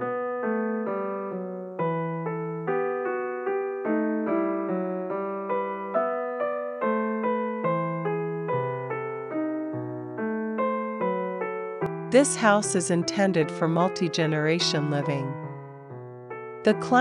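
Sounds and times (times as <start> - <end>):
gentle solo piano melody: 0.0 - 12.2.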